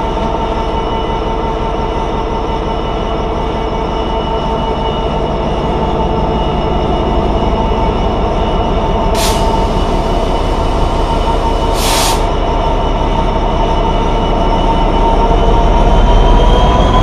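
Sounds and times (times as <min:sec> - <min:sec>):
diesel locomotive engine passing: 0:00.0 - 0:17.0
bursts of hiss: 0:09.2 - 0:12.3.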